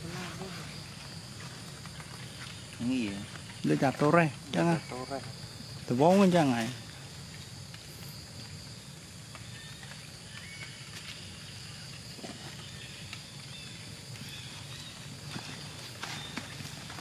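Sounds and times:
outdoor background noise: 0.0s - 17.0s
faint ticks: 7.3s - 8.6s.

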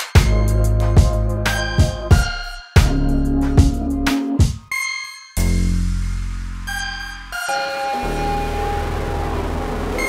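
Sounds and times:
drum beat: 0.0s - 4.7s.

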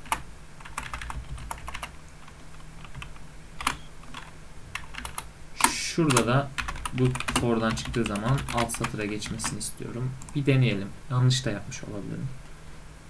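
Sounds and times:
computer keyboard typing: 0.0s - 10.4s.

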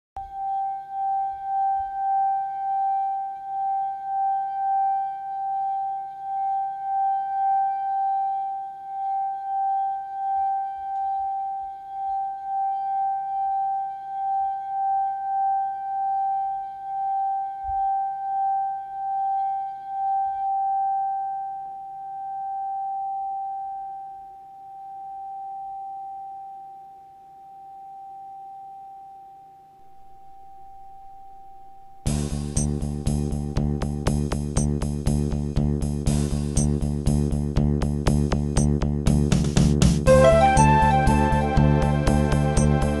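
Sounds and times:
crystal singing bowl ringing: 0.2s - 32.0s.

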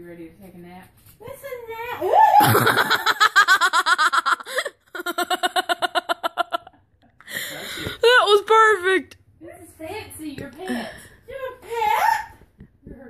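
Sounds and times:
person giggling: 2.4s - 6.7s.

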